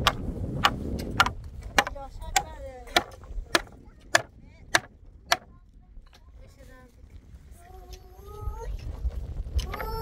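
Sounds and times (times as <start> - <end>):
hatchet chopping wood: 0.0 - 5.5.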